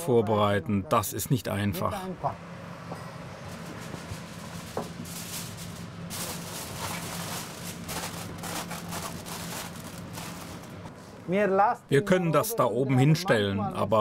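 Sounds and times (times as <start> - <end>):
steady low hum: 0.0 - 14.0
plastic bag crinkling: 3.5 - 10.9.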